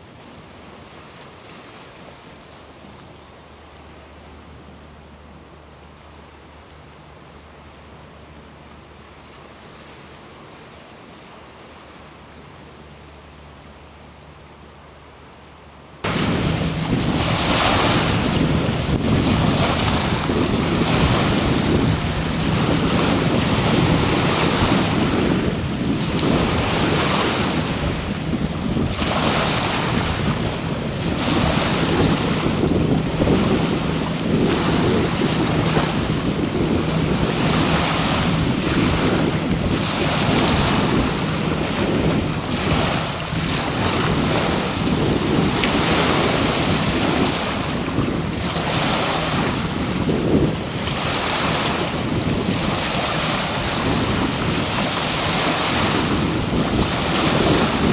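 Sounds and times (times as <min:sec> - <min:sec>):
waves washing onto shore: 0:00.0 - 0:14.6, 0:15.9 - 0:57.9
wind buffeting microphone: 0:16.0 - 0:57.9.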